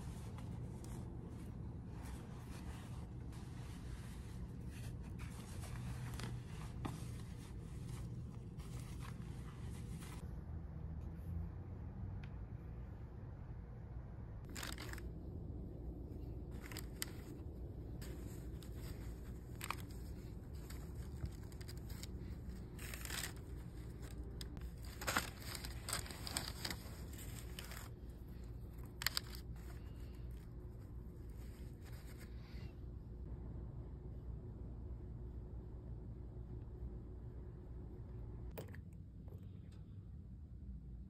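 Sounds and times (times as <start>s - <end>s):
packaging rustling and crinkling: 14.5s - 15.1s, 18.0s - 30.4s.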